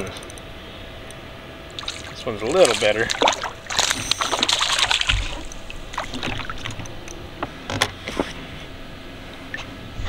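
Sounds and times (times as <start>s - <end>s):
water splashing: 1.7s - 6.9s
dull thump in a boat: 3.8s - 6.8s.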